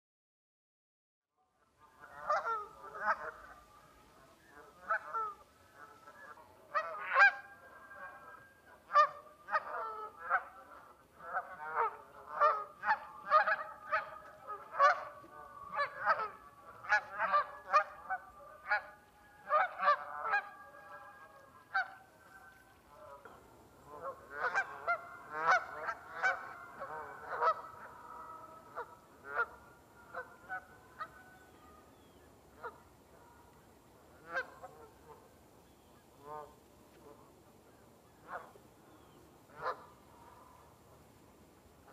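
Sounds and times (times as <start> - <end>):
geese honking: 1.8 - 35.3, 36.1 - 37.3, 38.2 - 40.8.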